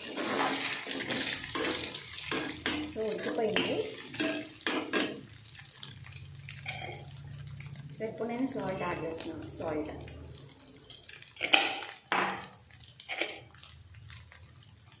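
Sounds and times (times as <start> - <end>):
metal ladle scraping metal pan: 0.0 - 7.0, 10.4 - 13.8.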